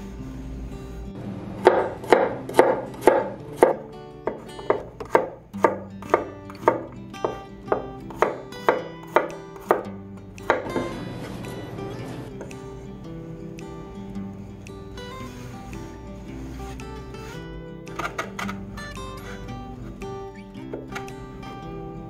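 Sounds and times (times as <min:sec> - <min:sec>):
knife knocking on wooden board: 0:04.3 - 0:09.8.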